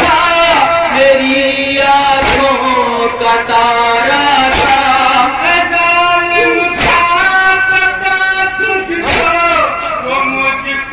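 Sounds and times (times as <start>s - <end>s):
male voices chanting a lament: 0.0s - 10.9s
crowd beating chests: 4.4s - 5.2s, 6.4s - 7.5s.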